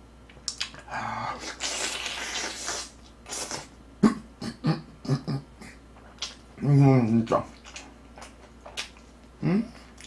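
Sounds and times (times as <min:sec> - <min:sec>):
lip smacks: 0:00.3 - 0:03.7, 0:06.0 - 0:06.5, 0:07.5 - 0:10.0
breathy hissing: 0:00.9 - 0:03.7
noisy chewing: 0:07.4 - 0:09.2.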